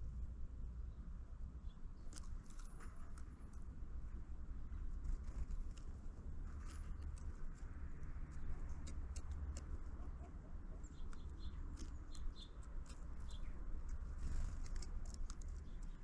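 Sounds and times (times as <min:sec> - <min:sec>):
birds pecking at feeder: 0:04.9 - 0:16.0.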